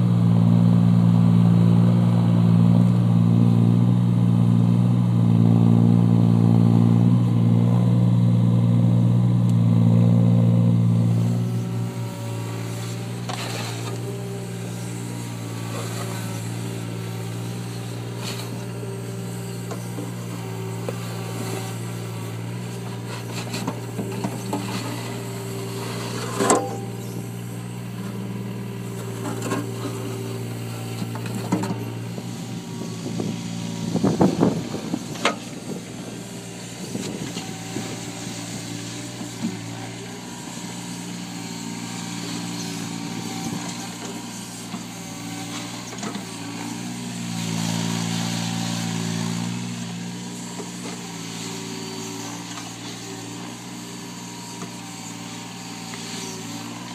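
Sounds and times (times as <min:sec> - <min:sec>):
excavator diesel engine running: 0:00.0 - 0:56.9
bucket scraping soil and stones: 0:11.2 - 0:41.1.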